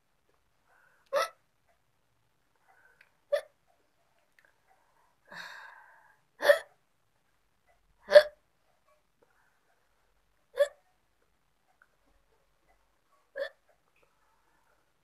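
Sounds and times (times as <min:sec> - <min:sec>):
soft breathy sound: 0:00.3 - 0:01.8, 0:02.4 - 0:06.8, 0:08.7 - 0:10.8, 0:11.7 - 0:15.0
woman hiccuping: 0:01.1 - 0:01.4, 0:06.4 - 0:06.7, 0:08.1 - 0:08.4, 0:10.6 - 0:10.8, 0:13.4 - 0:13.6.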